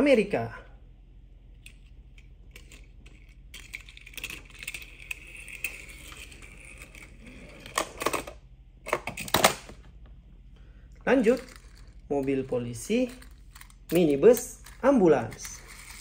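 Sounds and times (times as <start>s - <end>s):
toy car wheels rolling and rattling: 1.7s - 8.4s, 11.2s - 16.0s.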